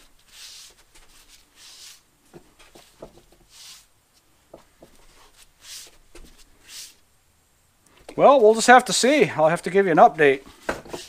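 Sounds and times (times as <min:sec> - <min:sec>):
gloved hands rubbing rubber tire: 0:00.0 - 0:04.0, 0:04.9 - 0:07.0.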